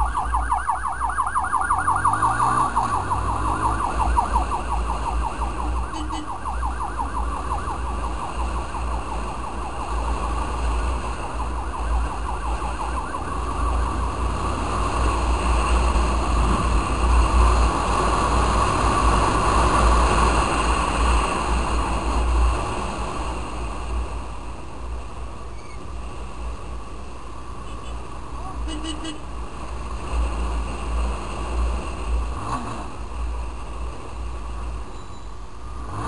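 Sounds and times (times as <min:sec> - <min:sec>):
siren yelping: 0:00.0 - 0:14.2
wind and road noise: 0:00.0 - 0:36.0.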